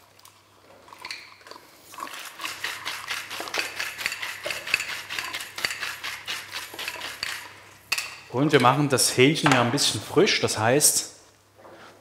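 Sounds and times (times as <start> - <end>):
salt mill grinding: 1.9 - 7.6.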